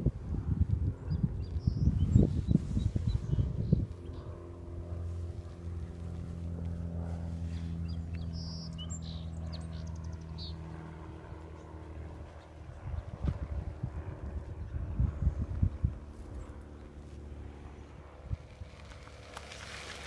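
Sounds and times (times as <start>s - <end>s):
low motor hum: 0.0s - 20.0s
bird chirps: 7.8s - 10.6s.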